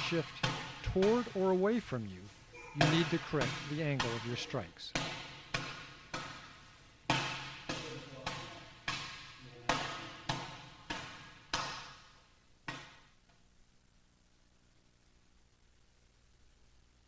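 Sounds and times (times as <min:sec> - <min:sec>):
open-hand slaps on training bag: 0:07.1 - 0:12.0.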